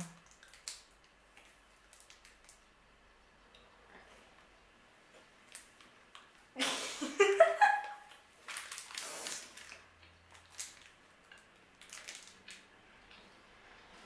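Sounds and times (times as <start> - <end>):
plastic wrapper crinkling: 0.2 - 2.6, 8.4 - 12.6.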